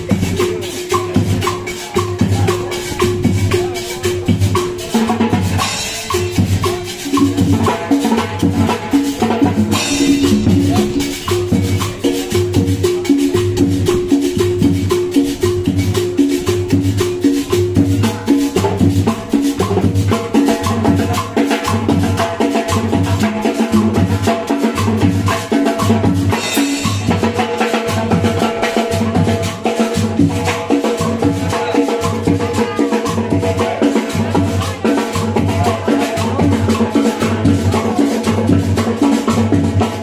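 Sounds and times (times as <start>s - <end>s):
cymbal crashes: 0.0s - 21.8s
bass drum beat: 0.0s - 29.4s
marching band playing: 0.0s - 40.0s.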